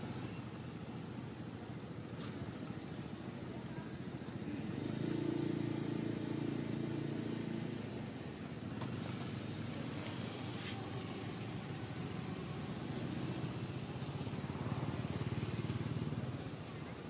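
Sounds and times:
low motor engine drone: 0.0 - 17.0.

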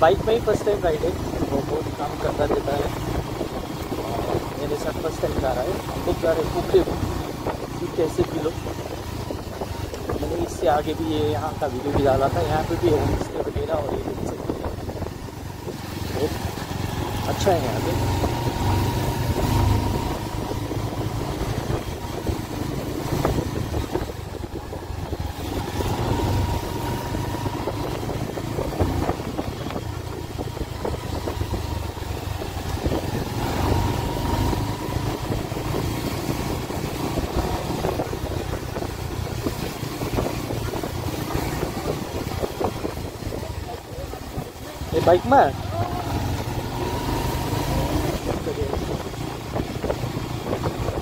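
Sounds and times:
motorcycle engine running: 0.0 - 51.0
tyres hissing on wet road: 32.2 - 50.8.

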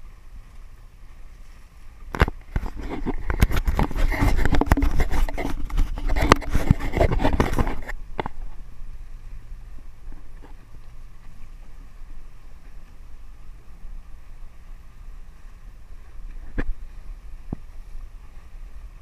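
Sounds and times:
camera handling scrapes and clicks: 2.2 - 8.4.

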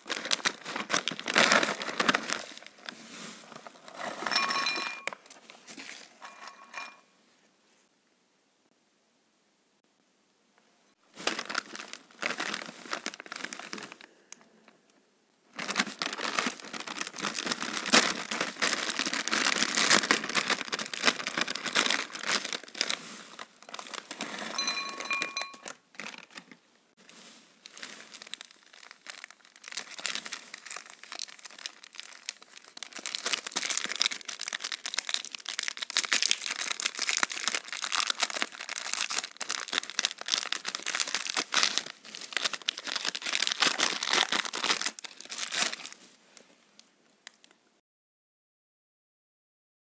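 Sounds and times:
snack wrappers crinkling and tearing: 0.0 - 4.0, 11.2 - 14.8, 15.5 - 24.5, 25.6 - 26.6, 27.6 - 46.0.

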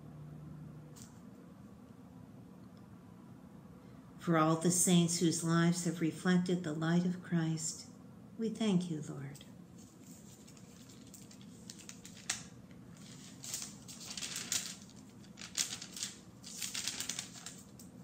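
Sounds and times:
faint room hum: 0.0 - 18.0
book pages rustling: 9.7 - 18.0.

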